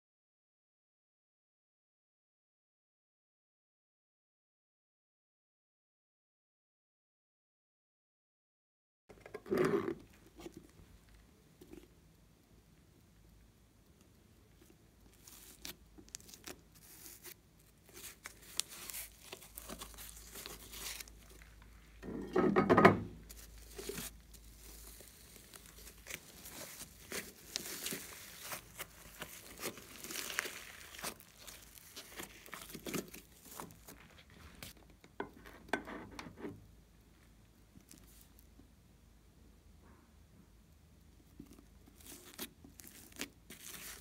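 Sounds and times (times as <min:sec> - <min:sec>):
slime crackling and popping: 0:13.8 - 0:21.6, 0:23.3 - 0:34.8, 0:41.4 - 0:44.0
slime squish: 0:13.8 - 0:21.9, 0:23.2 - 0:34.9, 0:41.2 - 0:44.0.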